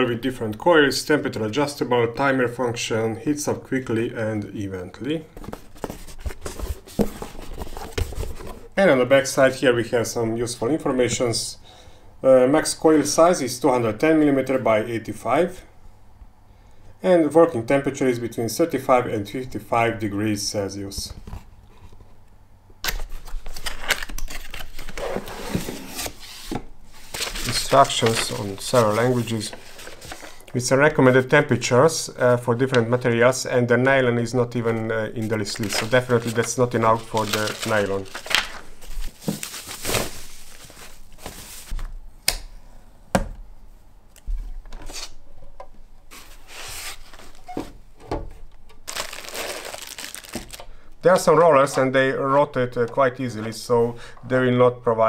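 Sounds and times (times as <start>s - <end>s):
rustling cardboard and foam packaging: 5.2s - 8.8s, 23.0s - 30.5s, 34.5s - 41.8s, 46.1s - 47.9s, 48.8s - 50.7s.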